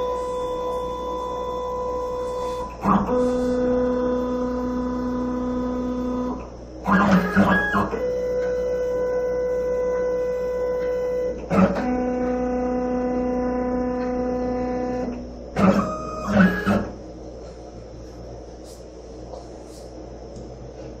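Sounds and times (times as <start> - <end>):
stepper motors whining: 0.0 - 17.0.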